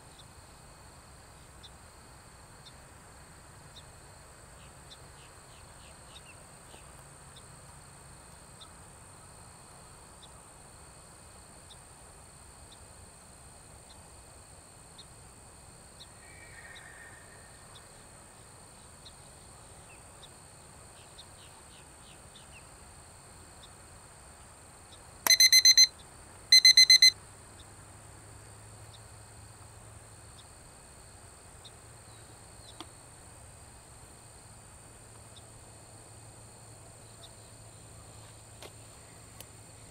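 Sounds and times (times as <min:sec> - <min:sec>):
insects droning: 0:00.0 - 0:39.9
electronic alarm beeping: 0:25.3 - 0:25.9, 0:26.5 - 0:27.2.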